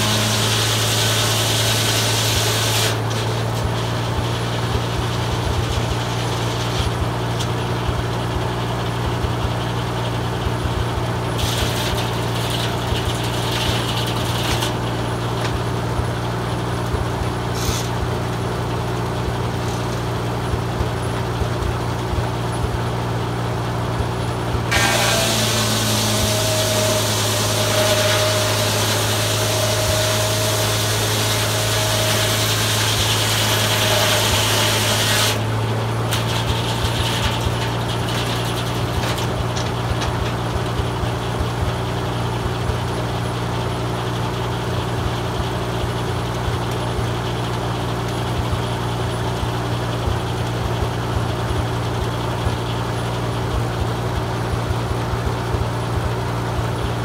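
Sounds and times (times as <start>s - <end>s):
circular saw cutting log: 0.0s - 21.6s, 23.6s - 54.7s
tractor engine running: 0.0s - 57.0s
clicks and rattles: 36.1s - 40.8s.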